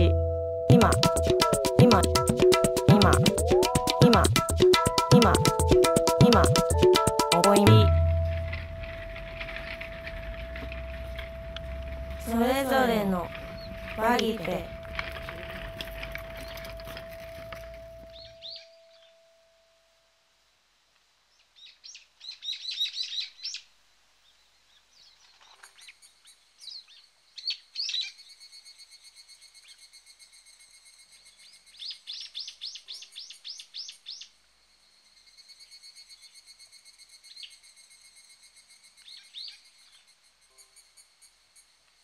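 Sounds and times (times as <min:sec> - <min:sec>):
small birds chirping: 0:13.0 - 0:19.2, 0:21.3 - 0:28.4.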